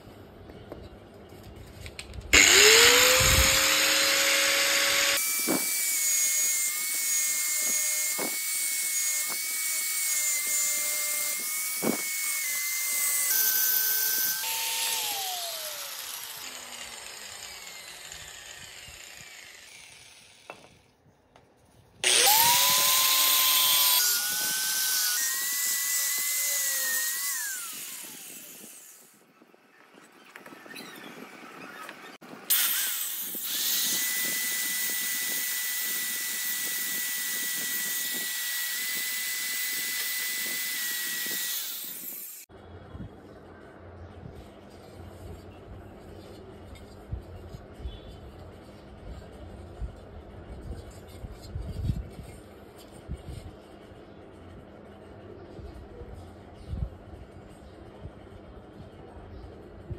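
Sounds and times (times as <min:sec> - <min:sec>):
electric rotary grinder whine: 0:02.4 - 0:20.8, 0:22.0 - 0:29.1, 0:32.5 - 0:42.5.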